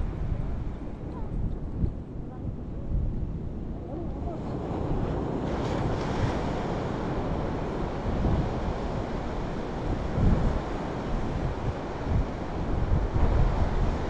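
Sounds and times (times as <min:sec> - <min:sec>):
wind buffeting microphone: 0:00.0 - 0:14.0
surf washing onto beach: 0:04.4 - 0:14.0.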